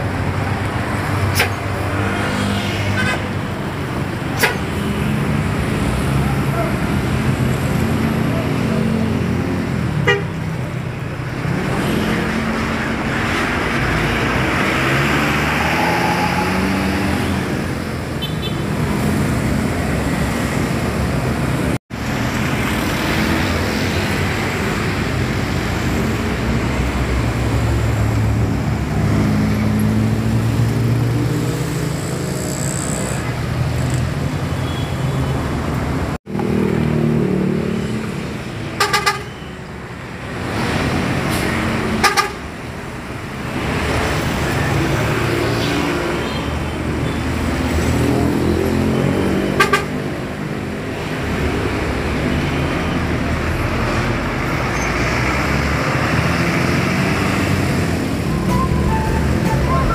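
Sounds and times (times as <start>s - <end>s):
bus engine: 0.0s - 59.9s
traffic noise: 0.0s - 59.9s
multi-tone bus horns: 10.0s - 10.5s, 38.8s - 39.5s, 42.0s - 42.5s, 49.5s - 50.2s, 58.2s - 59.9s.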